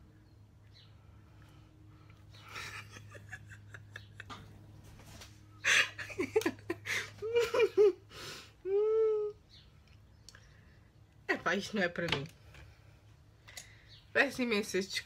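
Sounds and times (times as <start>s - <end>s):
woman giggling: 2.4s - 4.5s, 5.6s - 9.4s.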